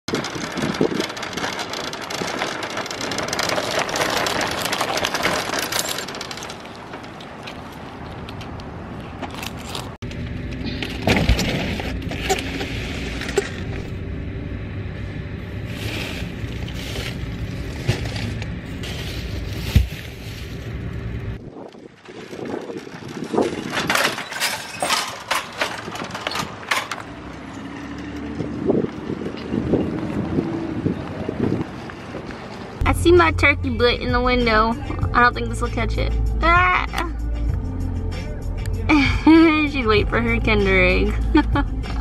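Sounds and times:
shopping cart rattling on asphalt: 0.1 - 8.3, 10.8 - 14.0, 15.5 - 30.3
plastic rustling: 15.6 - 21.1.

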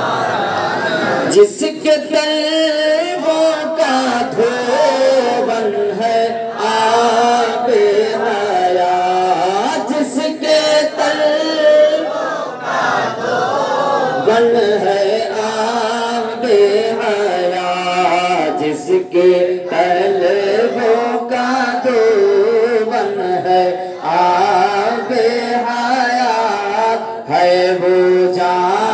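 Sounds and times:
men chanting unaccompanied: 0.0 - 28.9.

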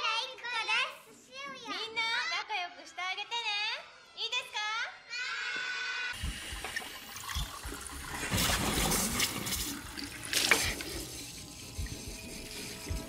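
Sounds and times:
tap water splashing into sink: 6.2 - 11.1.

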